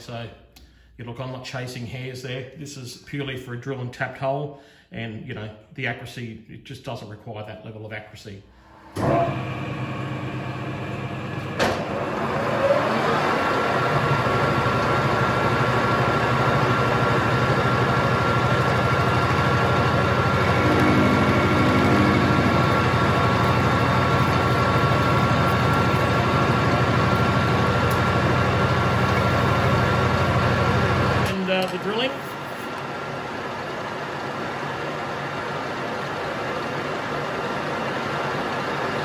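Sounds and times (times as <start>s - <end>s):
lathe running with gear whine: 9.0s - 39.0s.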